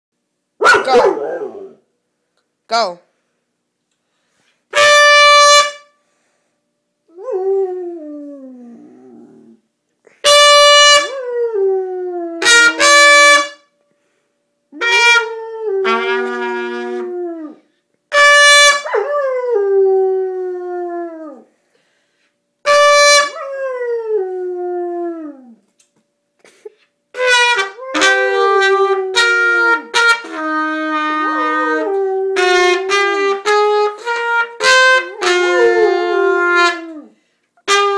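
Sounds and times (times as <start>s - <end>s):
trumpet short loud notes: 4.7s - 6.0s, 10.2s - 11.2s, 12.4s - 13.6s, 14.8s - 17.1s, 18.1s - 18.9s, 27.2s - 31.8s, 32.4s - 36.9s, 37.6s - 37.9s
dog howling: 35.2s - 37.1s.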